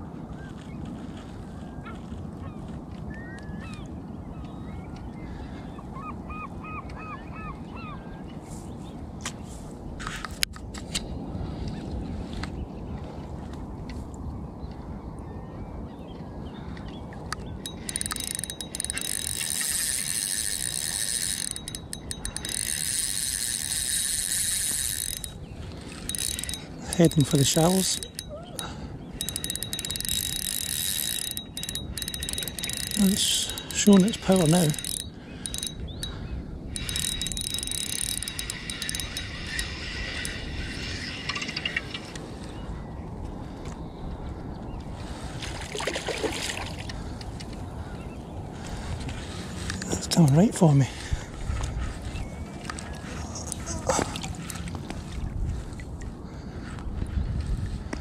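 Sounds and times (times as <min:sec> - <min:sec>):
wind rumble on microphone: 0:00.0 - 0:58.0
reel clicks: 0:16.8 - 0:42.3, 0:49.6 - 0:50.5, 0:52.6 - 0:55.6
fishing reel drag buzzing: 0:17.6 - 0:42.1.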